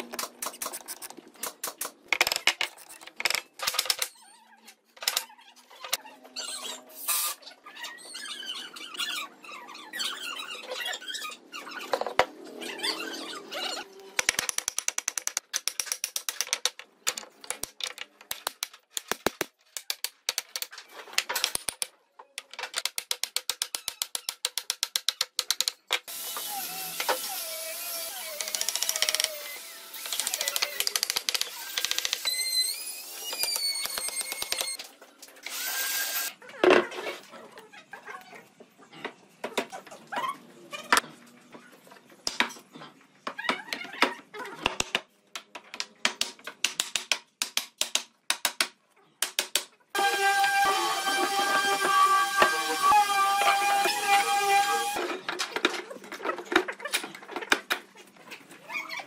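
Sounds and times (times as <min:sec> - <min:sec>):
wooden pieces squeaking and knocking: 0:00.0 - 0:59.0.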